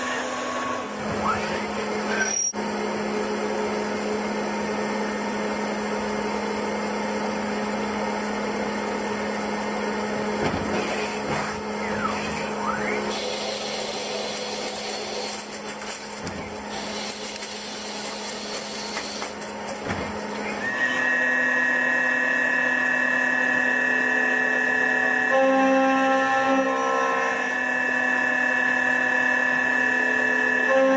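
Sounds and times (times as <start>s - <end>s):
high-pitched machining whine: 0.0s - 2.8s, 4.8s - 15.6s, 20.2s - 30.9s
machine spindle hum: 0.0s - 30.9s
metal cutting noise: 10.3s - 22.6s.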